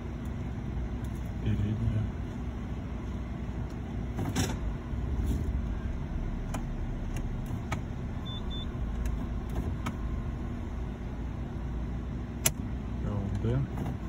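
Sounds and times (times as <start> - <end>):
car engine idling: 0.0 - 14.0
gear selector clicks and clunks: 6.5 - 7.9, 8.9 - 10.0, 12.4 - 12.7.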